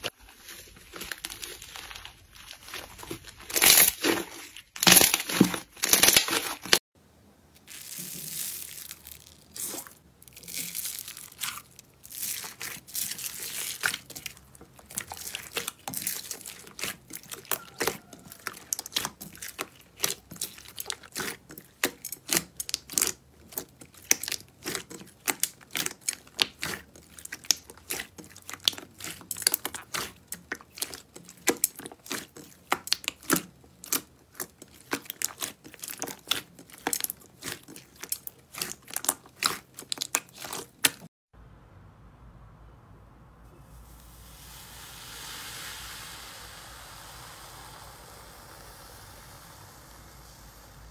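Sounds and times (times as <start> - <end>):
hands kneading slime: 0.0 - 6.8, 7.6 - 41.1.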